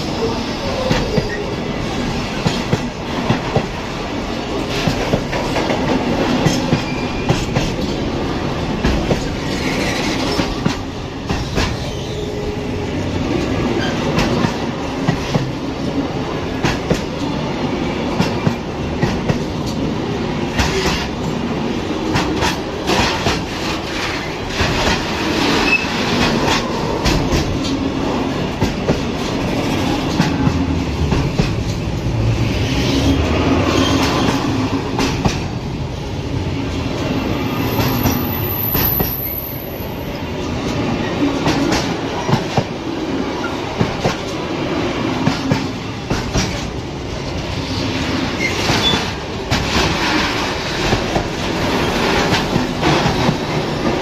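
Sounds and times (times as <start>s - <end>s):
train rumbling past: 0.0s - 54.0s
high wheel squeal: 6.8s - 7.5s, 37.2s - 40.0s.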